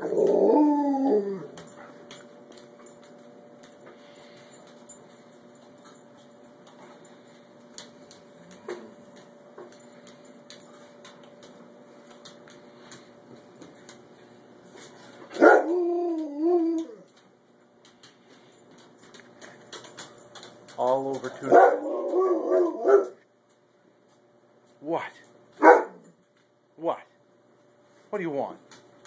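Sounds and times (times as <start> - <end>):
dog howl-like whine: 0.0 - 1.7, 15.4 - 17.1, 21.8 - 23.1.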